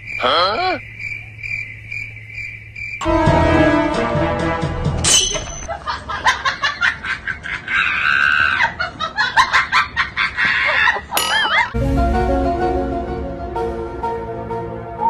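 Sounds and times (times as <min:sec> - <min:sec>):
music: 0:03.0 - 0:05.2, 0:11.8 - 0:15.0
person laughing hard: 0:05.7 - 0:11.8.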